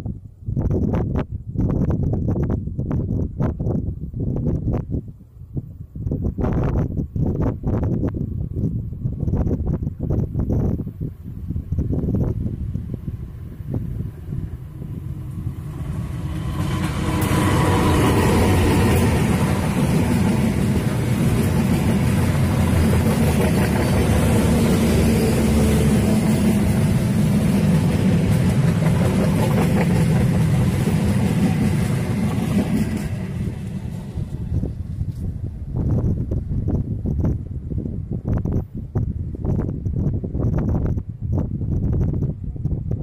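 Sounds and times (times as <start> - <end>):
diesel locomotive engine: 8.0 - 41.0
train wheels on rails: 11.7 - 37.8.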